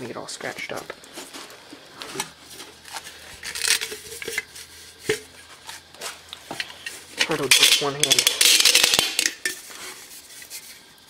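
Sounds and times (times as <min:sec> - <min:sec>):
metal scrape: 0:02.0 - 0:10.8
metal parts clinking and knocking: 0:06.5 - 0:09.6.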